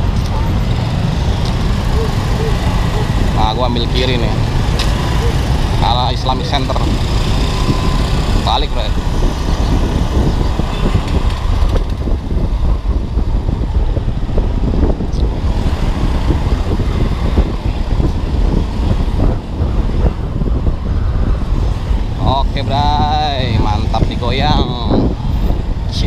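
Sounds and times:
wind on microphone: 0.0 - 26.0
scooter engine running: 0.2 - 6.0, 6.6 - 13.2.

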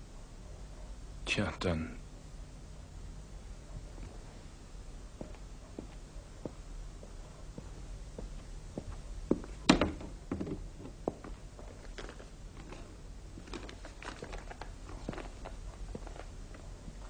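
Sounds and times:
footsteps with light knocks: 5.1 - 17.0
wooden wardrobe door clunking open: 9.7 - 10.6
paper envelope rustling: 11.7 - 16.3.

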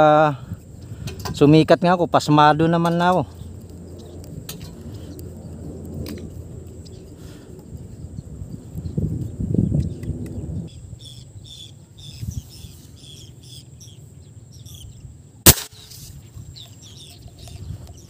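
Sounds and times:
birds chirping: 0.0 - 15.2, 15.8 - 18.0
low rumbling handling noise: 0.6 - 10.8
fishing gun crack: 15.5 - 16.0.

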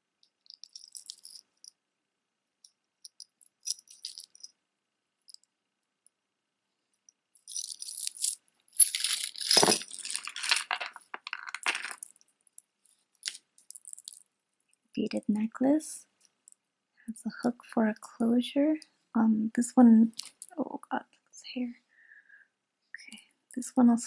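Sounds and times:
metal chains and beads clinking: 0.4 - 1.7, 3.1 - 4.5, 7.4 - 12.2, 13.2 - 14.2
necklace knocking down: 7.6 - 12.1.

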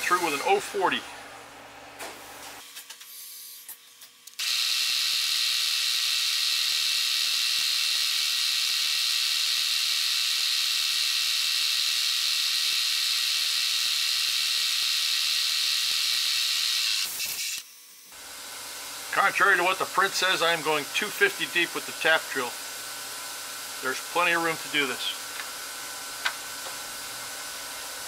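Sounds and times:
high-pitched drill whir: 0.0 - 0.7, 3.0 - 17.8.

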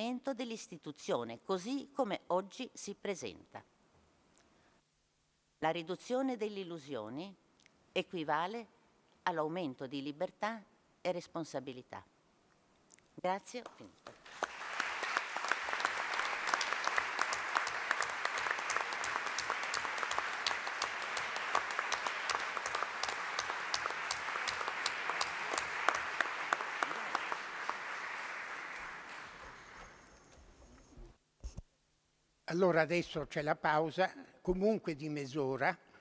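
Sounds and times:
audience applauding: 14.0 - 30.5.

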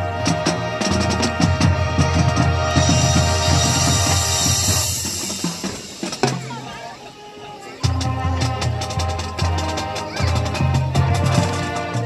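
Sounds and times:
marching band playing: 0.0 - 12.0.

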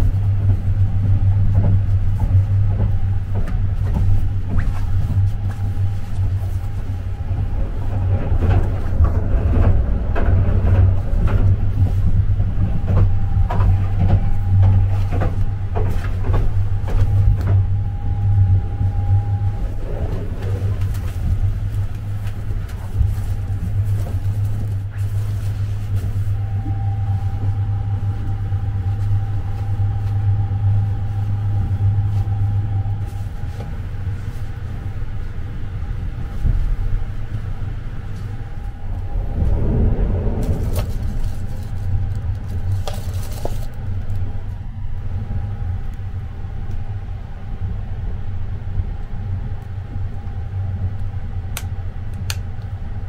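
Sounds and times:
faint steady whine: 0.0 - 53.0
train running low rumble: 0.0 - 53.0.

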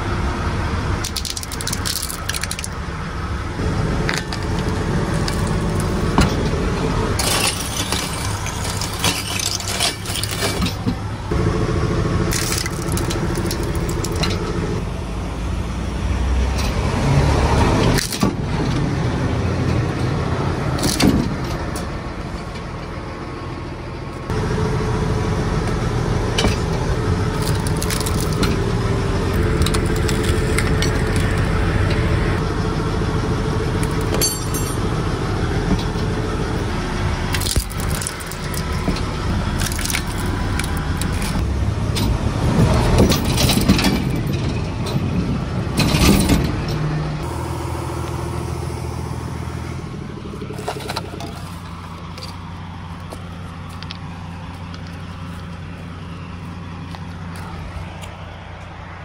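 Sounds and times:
steady engine rumble: 0.0 - 59.0
plastic cracking and crunching: 1.0 - 2.8, 12.3 - 14.2, 27.3 - 28.6, 29.3 - 31.6, 37.3 - 38.8, 39.5 - 41.4.

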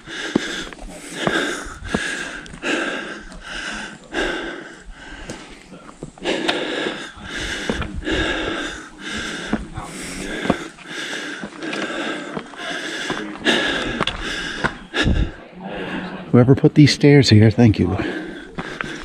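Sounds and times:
person breathing hard: 0.0 - 16.3, 18.0 - 19.0
footsteps on gravel: 9.4 - 14.8.

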